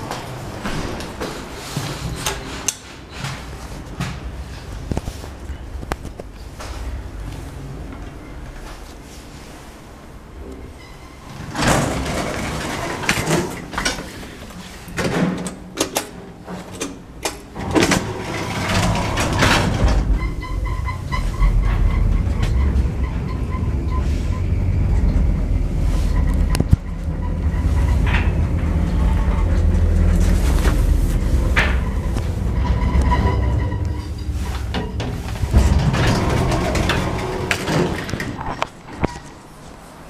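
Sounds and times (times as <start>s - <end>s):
lift cab rumbling: 0.0s - 14.9s, 16.2s - 39.6s
lift doors clacking: 10.5s - 39.5s.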